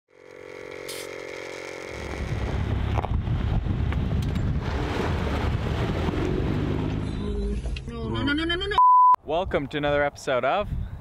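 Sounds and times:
engine rumbling low: 0:00.1 - 0:08.8.

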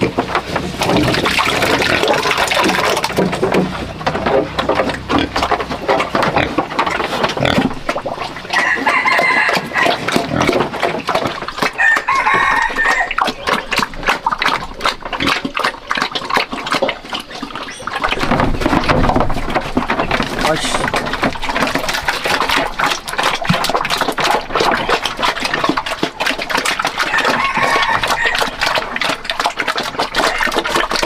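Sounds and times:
pig slurping and chomping mash: 0:00.0 - 0:31.0
rooster crowing: 0:08.5 - 0:10.1, 0:11.8 - 0:13.2, 0:27.0 - 0:28.5.

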